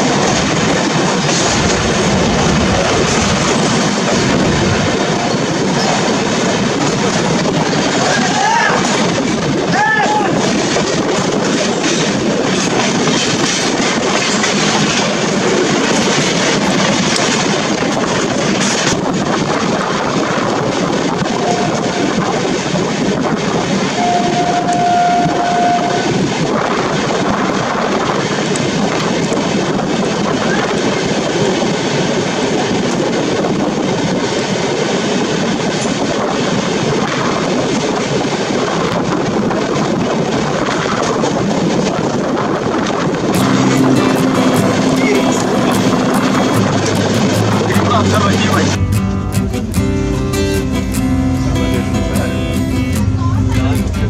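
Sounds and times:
train wheels on rails: 0:00.0 - 0:54.0
train horn: 0:21.2 - 0:22.3, 0:23.9 - 0:26.3.

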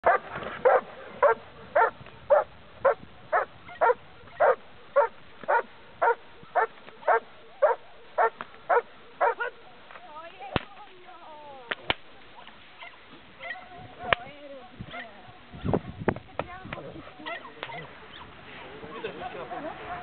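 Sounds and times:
dog barking: 0:00.0 - 0:09.6.

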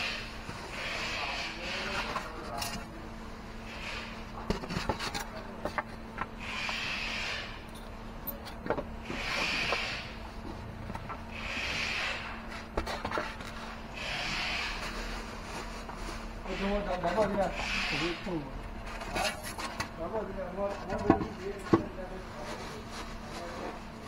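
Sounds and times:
foam and plastic bag rustling: 0:14.3 - 0:17.6, 0:19.0 - 0:23.9.

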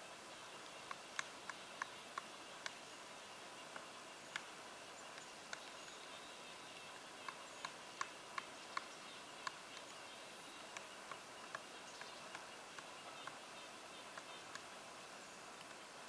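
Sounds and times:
faint hiss: 0:00.0 - 0:16.0
woodpecker knocking on tree: 0:06.9 - 0:10.0, 0:10.7 - 0:13.5.

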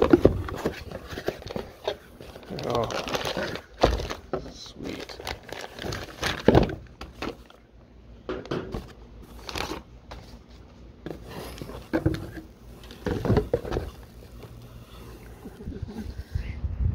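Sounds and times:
cardboard box rustling: 0:00.0 - 0:07.6, 0:08.7 - 0:16.2
plastic wrapping crinkling: 0:00.0 - 0:07.6, 0:08.7 - 0:09.9.

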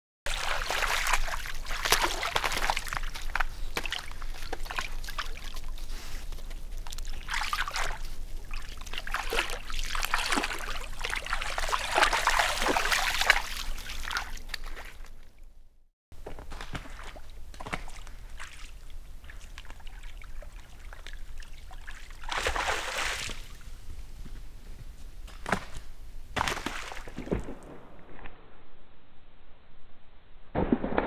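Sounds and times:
deer splashing through water: 0:00.3 - 0:15.1, 0:16.6 - 0:23.6, 0:26.4 - 0:27.7.

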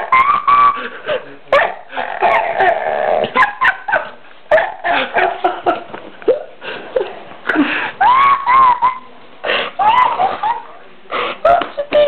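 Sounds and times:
dog whining and yelping: 0:01.5 - 0:03.5.

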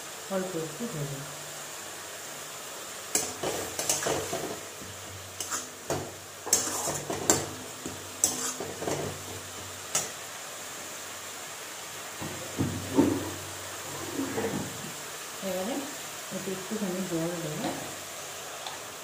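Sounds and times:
paste frying in oil: 0:00.0 - 0:19.0
metal spatula scraping metal pan: 0:03.2 - 0:04.6, 0:05.4 - 0:07.5, 0:08.2 - 0:09.2, 0:13.0 - 0:14.8.

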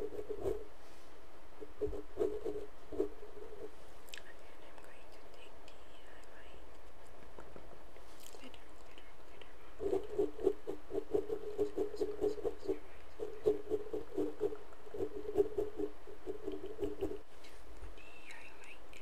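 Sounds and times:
fingertips tapping on microphone: 0:01.6 - 0:03.7, 0:09.8 - 0:17.2.

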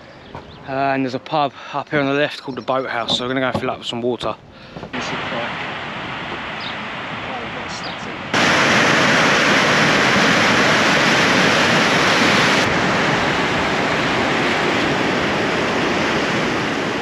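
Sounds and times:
river water rushing: 0:05.0 - 0:17.0.

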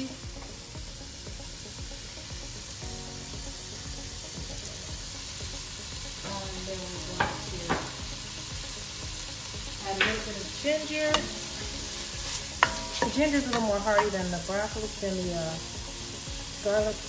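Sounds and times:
vegetables sizzling in oil: 0:00.0 - 0:17.0
wooden spoon stirring: 0:11.1 - 0:14.8.

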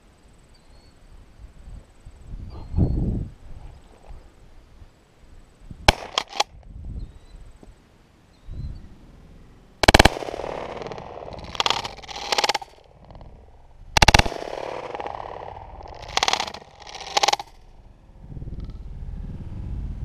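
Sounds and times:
shotgun shots with echo: 0:05.9 - 0:06.5, 0:09.8 - 0:12.7, 0:13.9 - 0:17.6.

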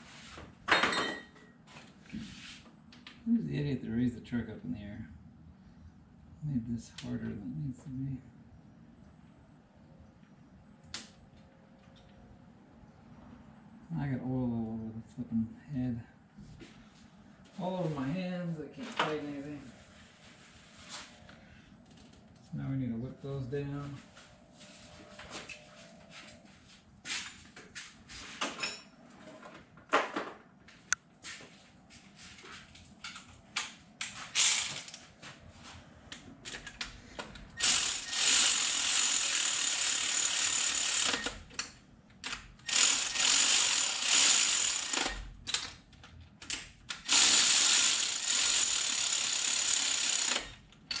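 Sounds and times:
ratchet wrench ratcheting: 0:34.4 - 0:34.9, 0:37.6 - 0:45.8, 0:46.5 - 0:51.0.

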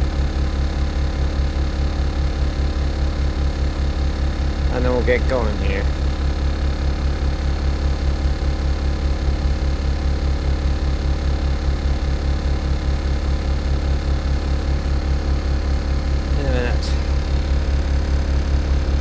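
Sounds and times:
bus diesel engine droning: 0:04.2 - 0:06.4, 0:13.7 - 0:19.0.

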